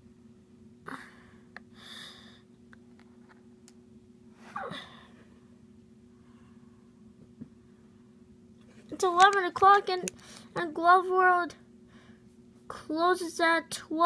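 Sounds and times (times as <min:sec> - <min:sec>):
steady low hum: 0:00.0 - 0:14.0
handling clicks: 0:09.0 - 0:10.2.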